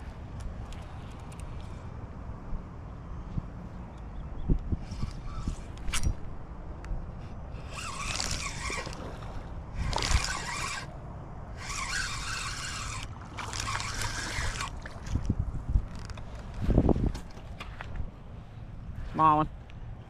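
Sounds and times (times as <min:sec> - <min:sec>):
spinning reel whirring: 0:07.6 - 0:09.2, 0:09.8 - 0:10.9, 0:11.6 - 0:14.8.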